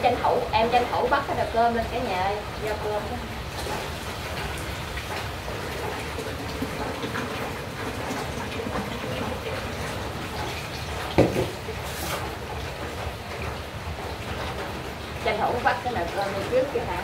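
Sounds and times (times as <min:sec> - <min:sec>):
tap water splashing into metal pot: 0:05.0 - 0:12.2.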